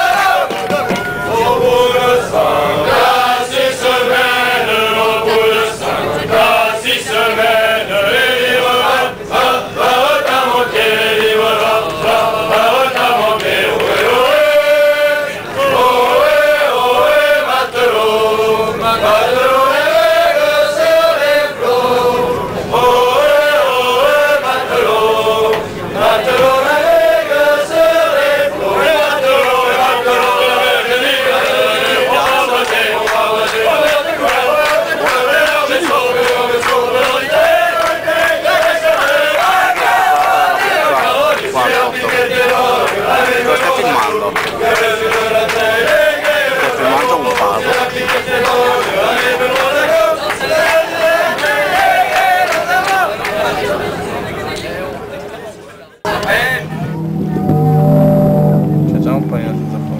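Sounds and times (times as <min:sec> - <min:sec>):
crowd singing in unison: 0:00.0 - 0:54.9.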